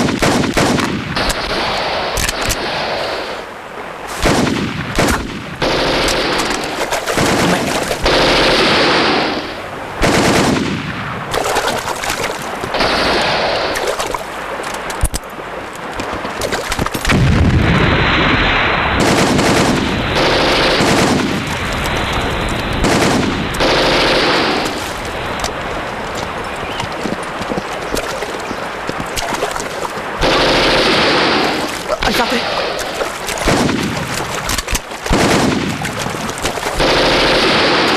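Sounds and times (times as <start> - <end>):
gunfire and automatic bursts: 0.0 - 3.4, 4.2 - 15.2, 19.0 - 37.9
heavy explosion: 17.1 - 21.5.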